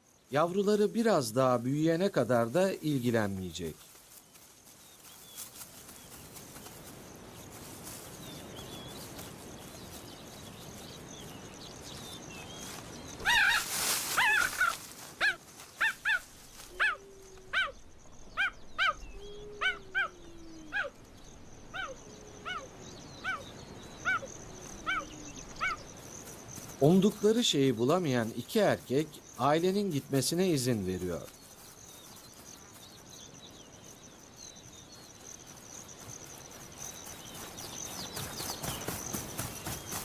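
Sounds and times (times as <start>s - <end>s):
cheetahs chirping: 8.1s - 40.0s.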